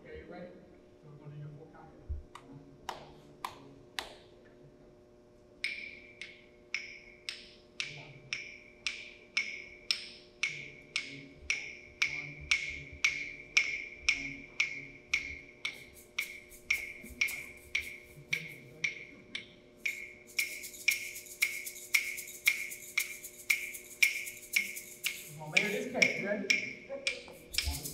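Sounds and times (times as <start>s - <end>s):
wood block knocking: 16.6s - 19.1s.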